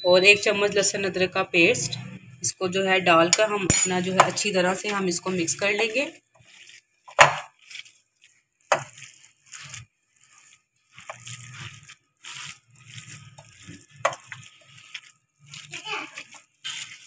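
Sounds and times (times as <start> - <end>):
hands squishing minced meat: 6.1 - 17.0.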